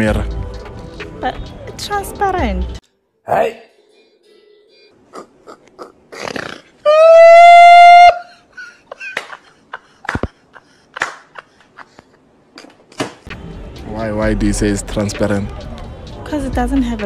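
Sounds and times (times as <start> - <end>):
man laughing hard: 6.9 - 12.2.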